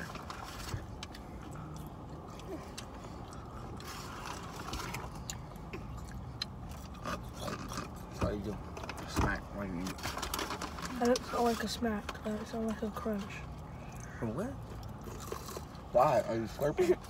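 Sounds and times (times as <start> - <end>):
chewing crunches: 0.0 - 8.2, 13.5 - 15.9.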